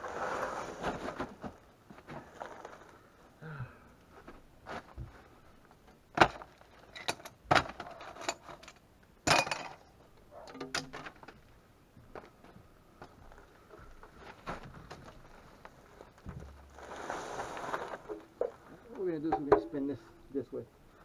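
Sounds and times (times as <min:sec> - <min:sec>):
scraping and rustling: 0:00.0 - 0:03.0, 0:14.1 - 0:20.2
knocks and clunks: 0:18.1 - 0:20.2.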